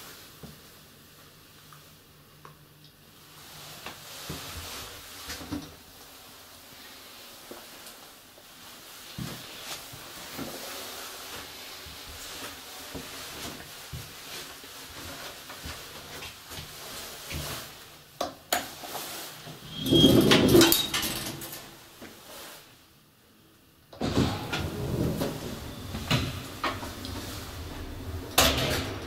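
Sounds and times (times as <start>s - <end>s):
metal gate clattering shut: 19.8s - 21.6s, 24.0s - 26.8s, 28.3s - 29.0s.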